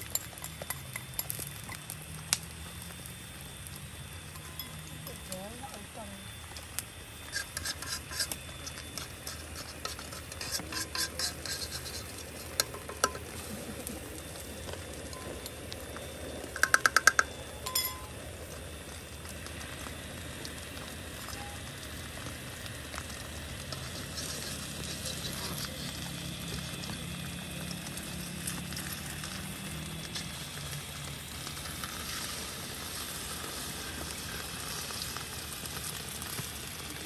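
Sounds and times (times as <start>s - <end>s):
egg frying with low sizzle: 0.0s - 37.0s
spoon scraping a wok: 7.2s - 13.3s, 23.7s - 26.0s
ringing spoon taps: 16.6s - 18.1s.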